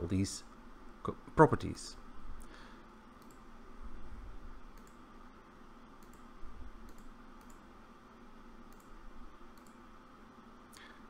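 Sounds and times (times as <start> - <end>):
computer mouse clicks: 3.2 - 3.4, 4.7 - 5.0, 6.0 - 7.6, 8.7 - 9.8.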